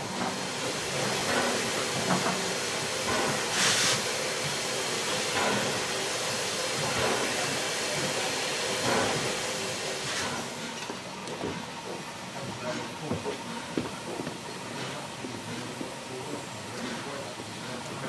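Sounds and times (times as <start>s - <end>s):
sharp steam hiss: 0.0s - 10.6s
steam hissing: 0.0s - 10.8s
steam puffs: 0.0s - 10.8s.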